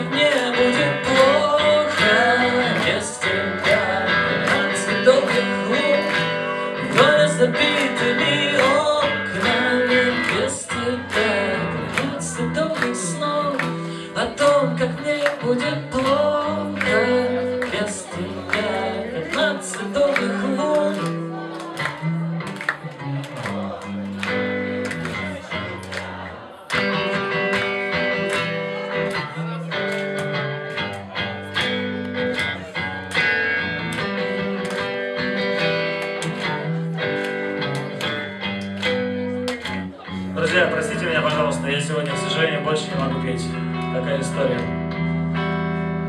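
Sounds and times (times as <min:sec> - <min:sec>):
man singing into a microphone: 0:00.0 - 0:21.5, 0:40.0 - 0:44.0
electric guitar: 0:00.0 - 0:46.0.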